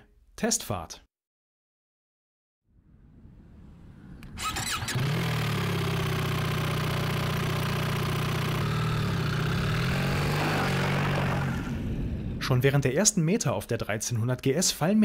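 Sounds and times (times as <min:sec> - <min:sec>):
motorcycle engine cranking: 0:04.4 - 0:09.6
motorcycle engine idling: 0:04.8 - 0:10.2.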